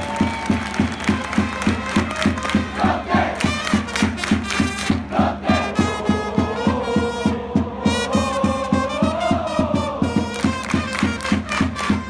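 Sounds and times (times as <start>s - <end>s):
steady drum beat: 0.0s - 12.0s
brass melody: 1.1s - 12.0s
crowd singing along: 2.7s - 3.5s, 4.9s - 11.1s.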